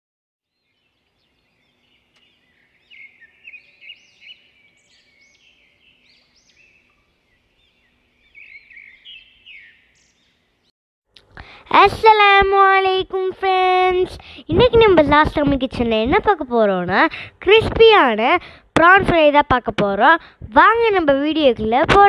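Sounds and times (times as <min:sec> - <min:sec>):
birds chirping: 0:00.5 - 0:10.7
faint steady hum: 0:00.6 - 0:21.5.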